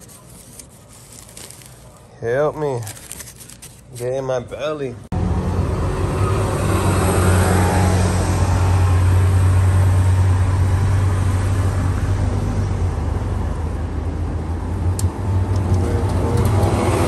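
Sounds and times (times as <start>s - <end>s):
car engine and road noise: 5.0s - 17.0s.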